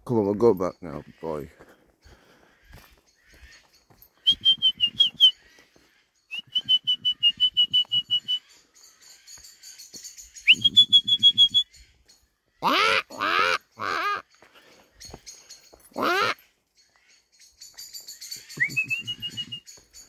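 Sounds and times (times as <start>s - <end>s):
loud lower bird calls: 0.8s - 20.0s
bird whistling rapidly: 4.2s - 5.4s, 6.3s - 8.5s, 10.4s - 11.8s, 18.3s - 19.7s.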